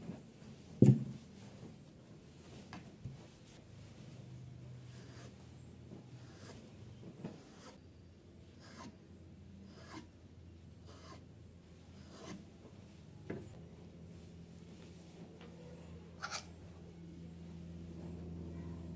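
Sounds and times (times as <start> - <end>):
knife scraping wooden board: 8.6 - 8.9, 9.7 - 10.1, 10.9 - 11.2, 12.0 - 12.4.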